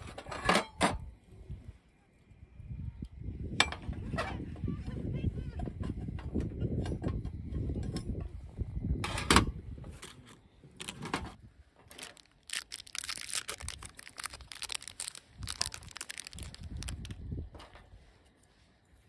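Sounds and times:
wrapper crinkling: 0:11.9 - 0:17.2.

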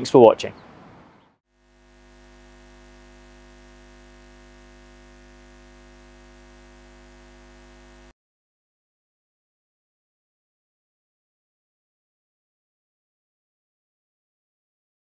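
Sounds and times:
faint steady hum: 0:01.6 - 0:08.1.

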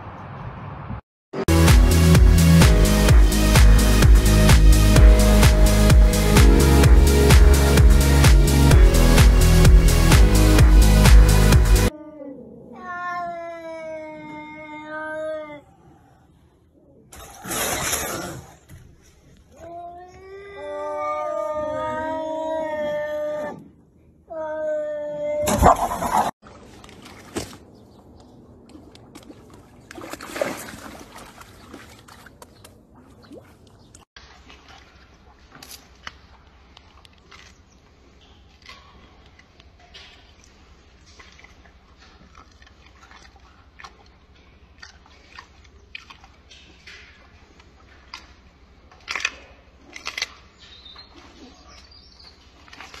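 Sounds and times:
water lapping against stone shore: 0:25.7 - 0:53.0
gorilla chewing wetly: 0:35.4 - 0:51.9.

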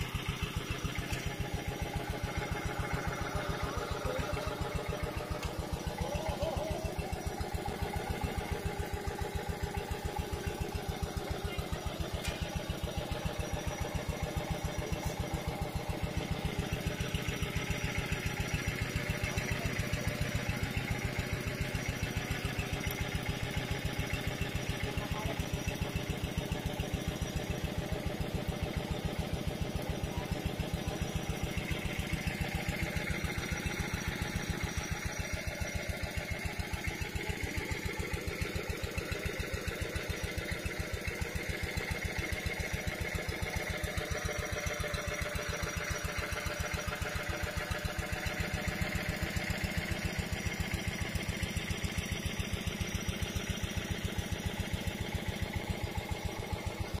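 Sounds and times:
stationary engine running: 0:00.0 - 0:57.0.

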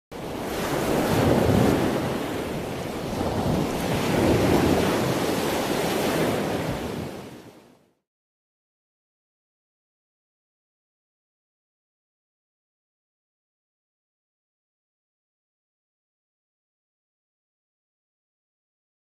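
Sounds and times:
ocean waves washing in: 0:00.1 - 0:08.0.

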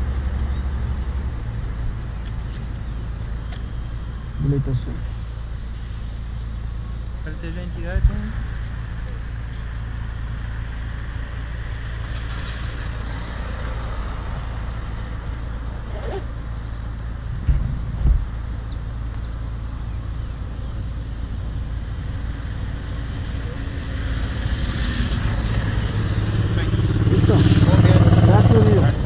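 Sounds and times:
motorcycle engine idling: 0:26.0 - 0:29.0.

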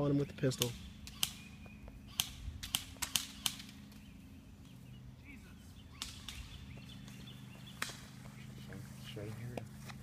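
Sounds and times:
airsoft gun shots: 0:00.5 - 0:01.5, 0:02.1 - 0:04.0, 0:06.0 - 0:06.6.

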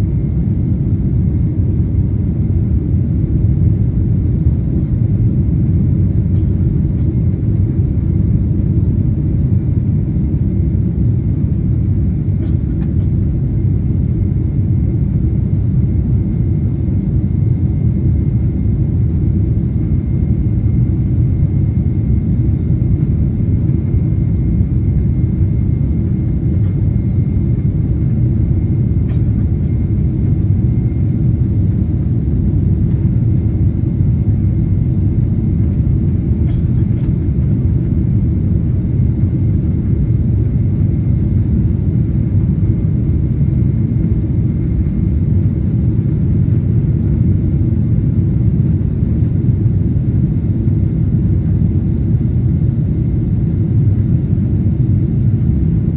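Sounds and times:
airplane engines low rumble: 0:00.0 - 0:55.9
rushing air in cabin: 0:22.5 - 0:47.1.

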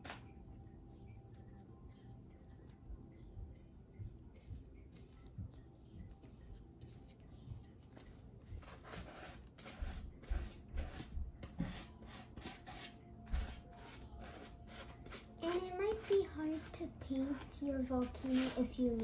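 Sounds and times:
paintbrush scrubbing on paper: 0:06.2 - 0:19.0.

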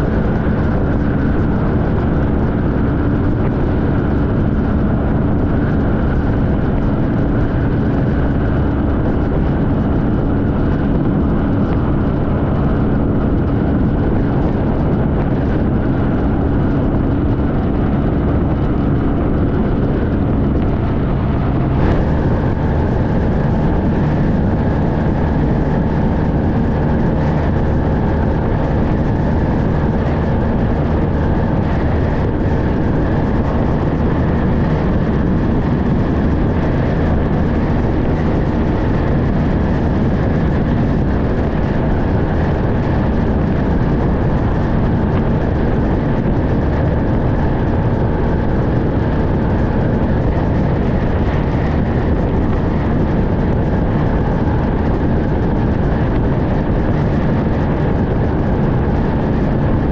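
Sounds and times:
motorcycle engine drone: 0:00.0 - 0:59.9
wind rush over microphone: 0:00.0 - 0:59.9.

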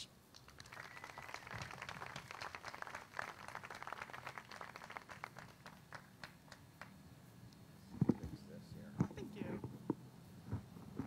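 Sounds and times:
audience applauding: 0:00.3 - 0:06.9.

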